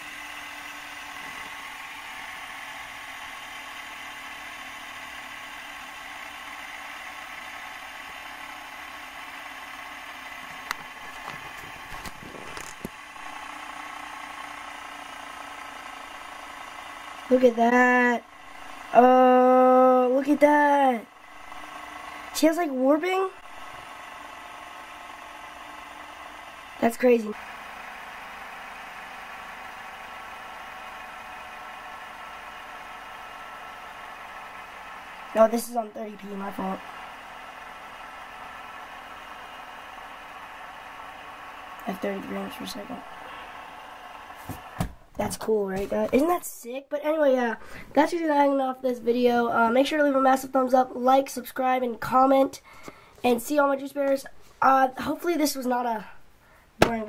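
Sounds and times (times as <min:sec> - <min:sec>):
fidget spinner whirring: 0:10.2 - 0:13.8, 0:16.9 - 0:24.5, 0:28.4 - 0:44.8.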